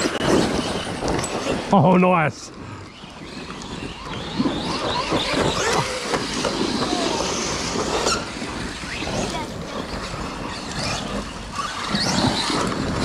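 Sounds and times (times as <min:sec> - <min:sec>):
electric rc car motors whining: 0:00.0 - 0:01.7, 0:02.6 - 0:13.0
dense rushing noise: 0:06.3 - 0:12.7.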